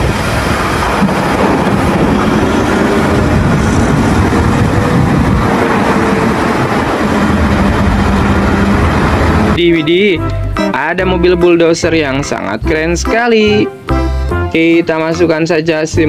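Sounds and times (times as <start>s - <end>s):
diesel loader engine under load: 0.0s - 9.6s.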